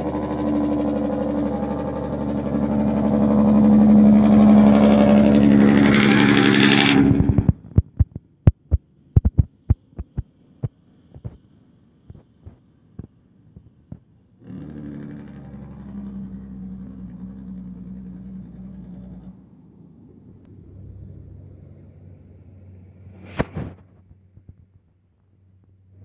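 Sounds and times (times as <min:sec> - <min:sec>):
truck diesel engine passing: 0:00.0 - 0:07.6, 0:14.3 - 0:23.4
sharp thumps: 0:07.1 - 0:11.4.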